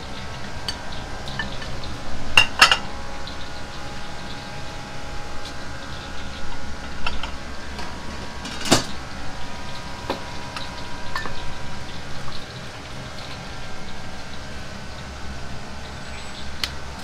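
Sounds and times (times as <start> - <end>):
kitchen equipment hum: 0.0 - 17.0
utensils and bowls clinking: 0.3 - 3.0.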